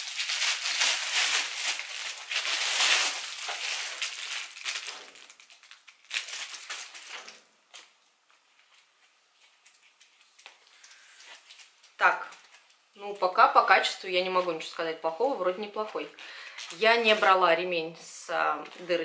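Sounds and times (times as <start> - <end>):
plastic packaging crinkling: 0.0 - 13.3, 16.4 - 17.5.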